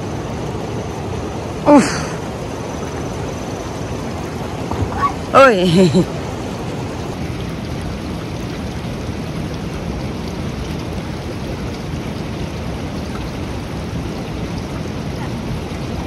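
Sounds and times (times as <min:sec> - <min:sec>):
river rushing: 0:00.0 - 0:16.0.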